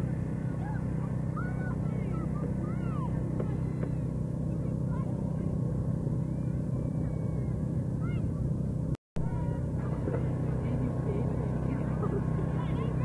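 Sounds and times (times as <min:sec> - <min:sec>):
faint high calls: 0:00.0 - 0:05.0, 0:06.1 - 0:08.5
steady low hum: 0:00.0 - 0:13.0.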